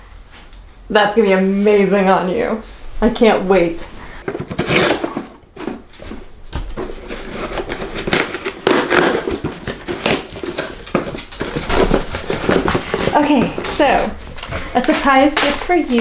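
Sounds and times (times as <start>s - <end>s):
cardboard box rustling and scraping: 4.2s - 14.8s.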